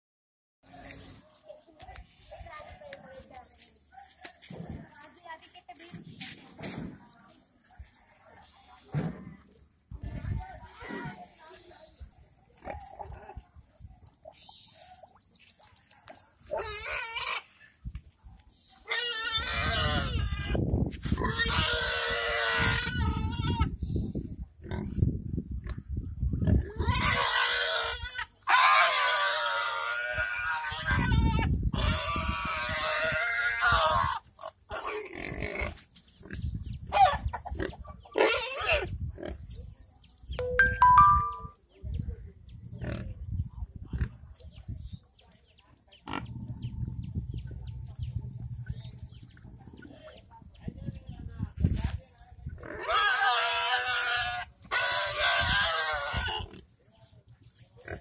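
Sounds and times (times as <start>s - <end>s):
pigs squealing: 16.5s - 17.6s, 18.8s - 20.6s, 21.2s - 23.8s, 26.6s - 35.8s, 36.9s - 38.9s, 52.6s - 56.6s.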